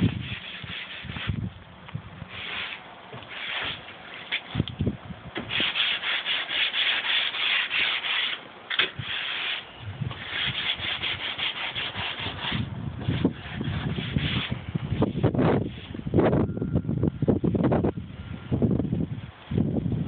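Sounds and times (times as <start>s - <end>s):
rough rubbing strokes: 0.0s - 1.5s, 2.3s - 4.6s, 5.4s - 16.1s.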